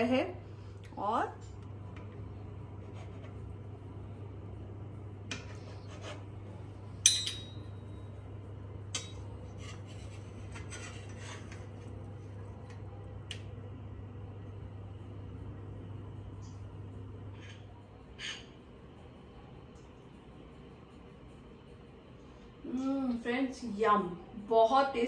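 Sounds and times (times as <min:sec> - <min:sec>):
cutlery scraping a plate: 0:05.3 - 0:06.3, 0:09.0 - 0:11.8, 0:17.3 - 0:18.6
ringing metal clink: 0:07.0 - 0:07.7.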